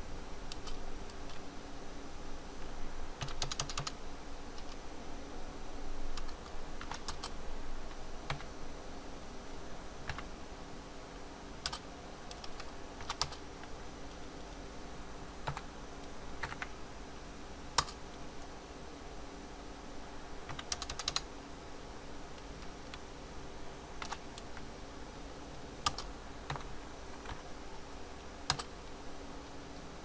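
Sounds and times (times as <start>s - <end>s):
faint steady hum: 0.0s - 30.0s
keyboard typing: 0.5s - 1.4s, 3.2s - 4.0s, 4.6s - 4.8s, 6.2s - 7.4s, 8.3s - 8.5s, 10.0s - 10.3s, 11.6s - 14.2s, 15.4s - 15.7s, 16.4s - 16.7s, 17.8s - 18.0s, 20.5s - 21.3s, 24.0s - 24.7s, 25.8s - 27.5s, 28.4s - 28.7s.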